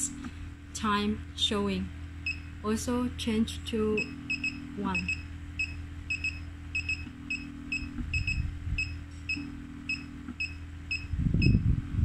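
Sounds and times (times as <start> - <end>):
higher hum switching on and off: 0.0 - 12.0
low pump hum: 0.0 - 12.0
short electronic beeps: 4.0 - 11.6.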